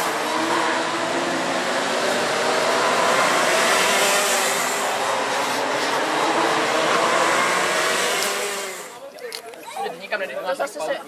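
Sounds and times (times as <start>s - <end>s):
racing kart engines running: 0.0s - 9.1s.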